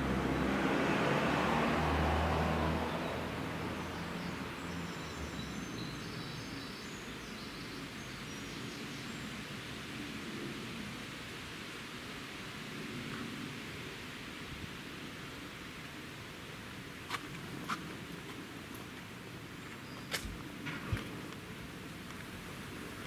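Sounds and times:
vehicle passing: 0.0 - 5.4
quiet street ambience: 0.0 - 23.0
faint birdsong: 2.3 - 10.0.

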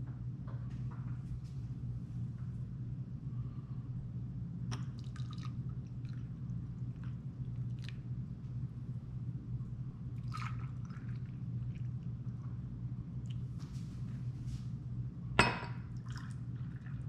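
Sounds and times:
steady low hum: 0.0 - 17.0
liquid pouring into glass cup: 4.7 - 6.2, 10.2 - 12.0, 16.0 - 17.0
faint splashes and drips: 4.7 - 8.6, 10.1 - 14.7, 15.8 - 17.0.

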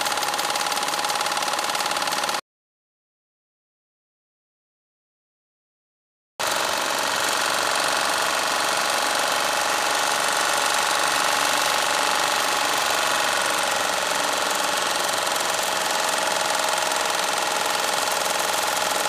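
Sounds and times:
engine generator running: 7.1 - 19.0.

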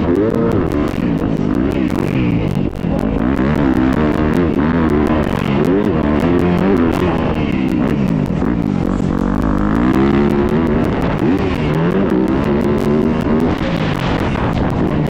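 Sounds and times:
motocross bike engine revving: 0.0 - 15.0.

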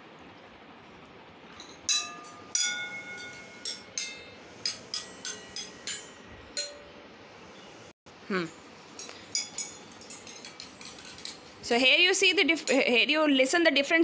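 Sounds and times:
metal bowls struck with spoon: 1.6 - 7.2, 9.0 - 11.4
metallic pings: 1.6 - 7.2, 9.0 - 11.4.

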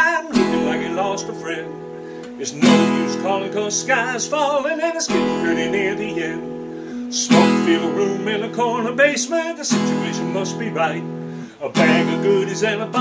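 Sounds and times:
acoustic guitar strumming: 0.0 - 13.0
man singing: 0.0 - 13.0.

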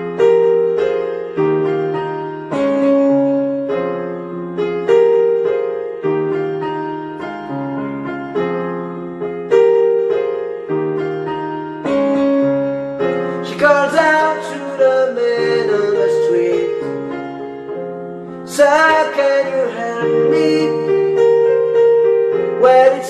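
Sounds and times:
keyboard piano chords: 0.0 - 23.0
man singing: 13.4 - 17.0, 18.4 - 21.2, 22.6 - 23.0.

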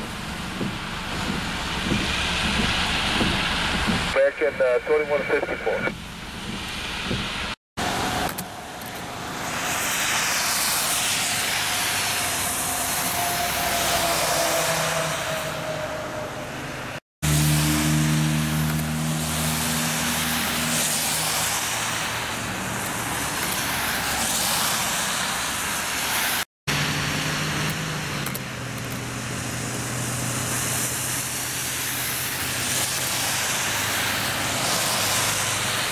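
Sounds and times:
low engine hum: 0.0 - 10.6
tyres hissing on wet road: 0.0 - 35.9.

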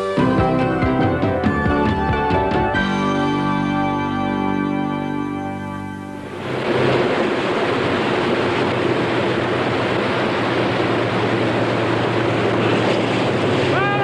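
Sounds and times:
music: 0.0 - 6.3
low engine drone: 2.8 - 14.0
rushing boat wake: 5.9 - 14.0.

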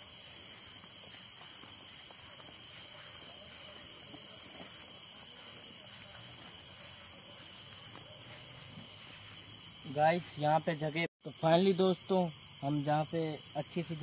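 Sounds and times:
footsteps on dirt path: 0.0 - 11.0
crickets chirping: 0.0 - 14.0.

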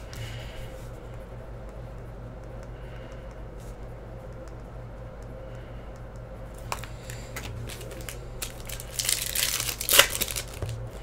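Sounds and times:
low electrical hum: 0.0 - 11.0
foil packs crinkling: 6.7 - 11.0.

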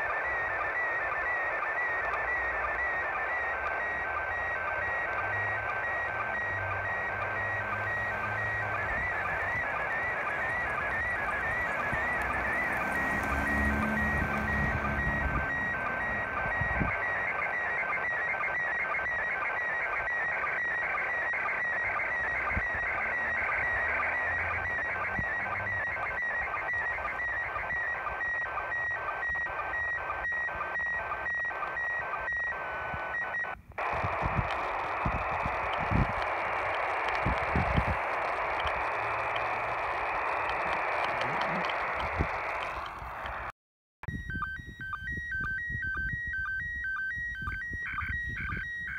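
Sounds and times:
radio static: 0.0 - 43.5
warbling image tones with pulse: 33.9 - 42.8.

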